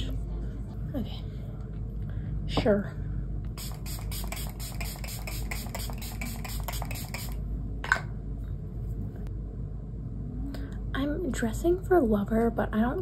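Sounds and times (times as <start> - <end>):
pump spray bottle misting: 3.6 - 7.4.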